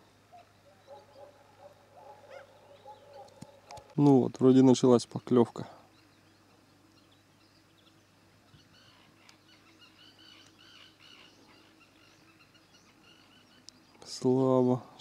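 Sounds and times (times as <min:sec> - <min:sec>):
faint bird chirps: 0:00.0 - 0:04.3, 0:05.1 - 0:15.0.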